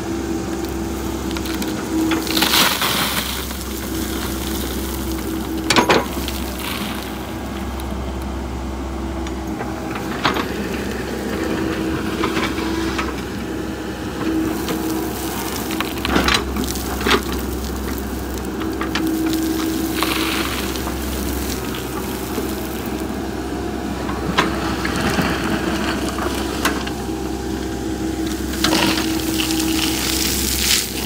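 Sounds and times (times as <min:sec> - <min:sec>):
excavator engine humming: 0:00.0 - 0:31.0
soil pouring from bucket: 0:00.8 - 0:07.9, 0:14.2 - 0:23.4, 0:27.9 - 0:31.0.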